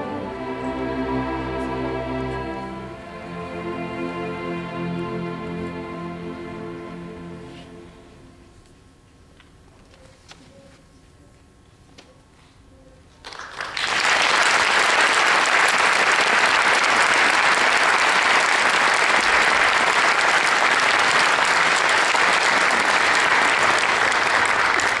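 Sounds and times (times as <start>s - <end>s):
audience applause: 13.2s - 25.0s.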